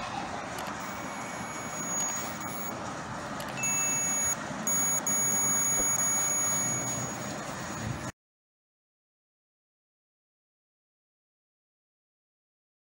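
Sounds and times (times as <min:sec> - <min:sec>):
meter continuity beeps: 0:00.8 - 0:02.8, 0:03.6 - 0:07.9.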